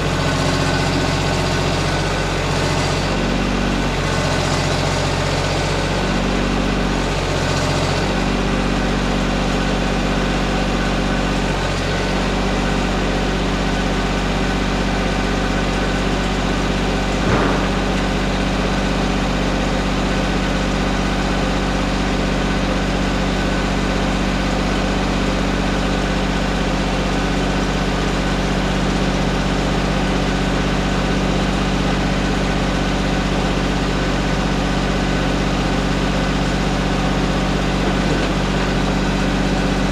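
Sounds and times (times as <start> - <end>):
tractor engine idling: 0.0 - 39.9
knock: 17.2 - 18.0.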